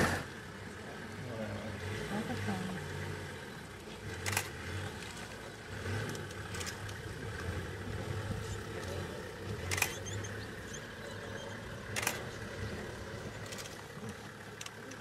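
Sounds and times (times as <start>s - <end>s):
vehicle engine idling: 0.0s - 15.0s
sharp clicks: 4.2s - 4.5s, 9.6s - 10.3s, 11.9s - 12.4s.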